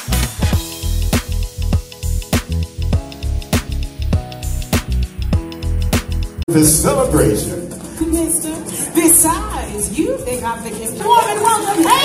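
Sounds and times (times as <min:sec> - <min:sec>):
upbeat music with drum beat: 0:00.0 - 0:06.4
sustained bass notes: 0:00.0 - 0:07.6.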